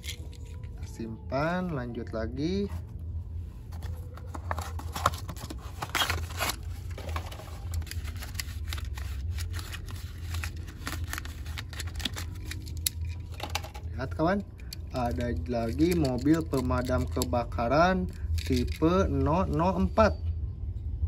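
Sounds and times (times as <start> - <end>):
cardboard rustling: 3.7 - 12.6.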